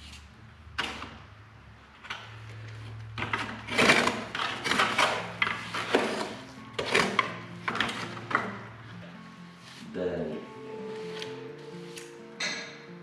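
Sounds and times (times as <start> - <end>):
trowel scraping mortar in bucket: 3.2 - 8.2.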